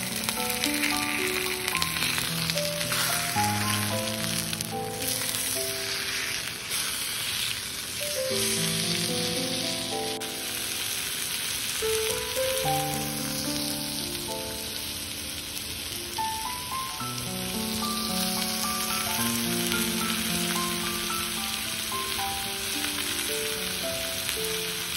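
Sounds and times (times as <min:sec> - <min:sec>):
meat sizzling in a skillet: 0:00.0 - 0:24.9
soft background music: 0:00.0 - 0:24.9.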